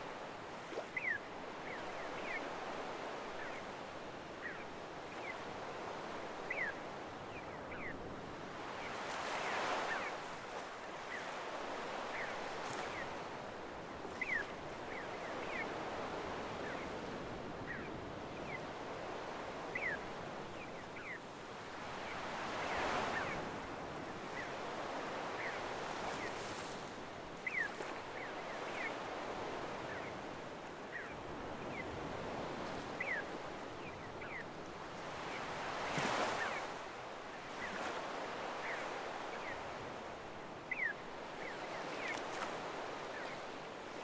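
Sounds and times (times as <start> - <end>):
waves washing over sand: 0.0 - 20.6, 21.7 - 44.0
seagulls calling: 40.7 - 43.5.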